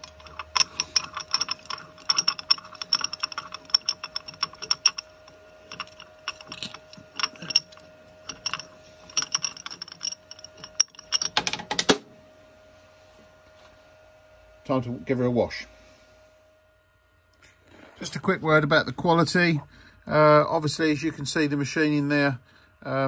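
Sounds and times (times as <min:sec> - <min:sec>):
metal clicking and rattling on metal: 0:00.0 - 0:12.0.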